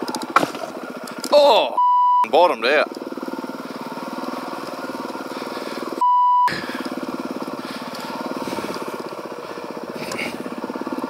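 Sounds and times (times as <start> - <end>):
dirt bike engine running: 0.0 - 11.0
high beep: 1.8 - 2.3, 6.0 - 6.5.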